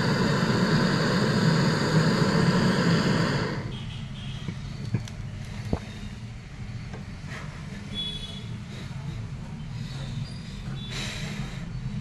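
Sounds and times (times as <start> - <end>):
torch flame hissing: 0.0 - 3.8.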